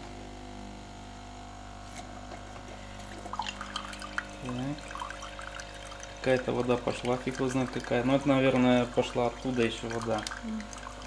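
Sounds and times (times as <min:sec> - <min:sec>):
pump humming: 0:00.0 - 0:11.0
water spitting and trickling: 0:03.0 - 0:11.0.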